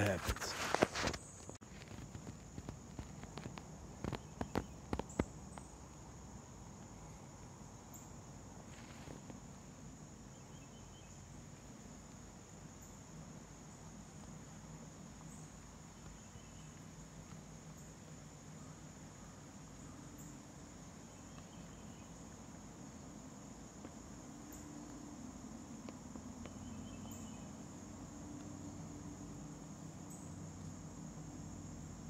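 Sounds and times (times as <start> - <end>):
crickets chirping: 0.0 - 32.0.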